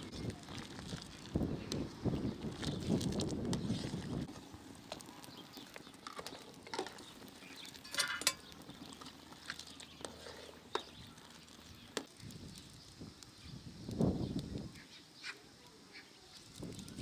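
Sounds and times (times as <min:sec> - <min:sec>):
ladle stirring in pot: 0:00.0 - 0:12.8
twig fire crackling: 0:00.0 - 0:17.0.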